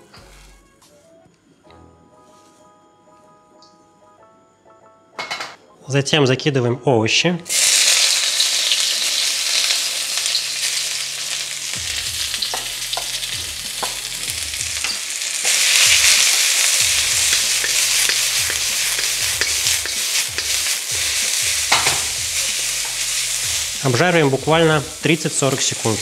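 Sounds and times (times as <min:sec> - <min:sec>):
vegetables sizzling in a wok: 0:00.0 - 0:00.6, 0:07.5 - 0:26.0
stirring clicks against pan: 0:17.3 - 0:20.6.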